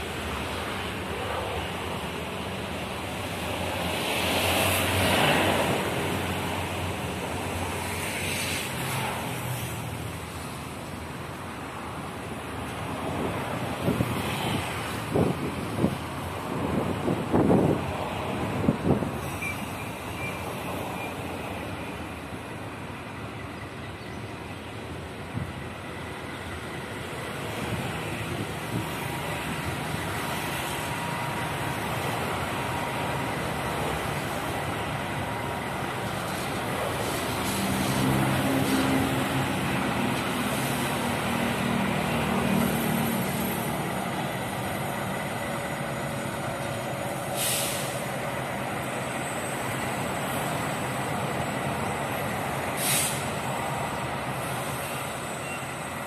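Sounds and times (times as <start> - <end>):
locomotive engine running: 0.0 - 8.0, 14.8 - 56.0
short air hisses: 36.2 - 39.0, 47.2 - 48.2, 52.8 - 53.4.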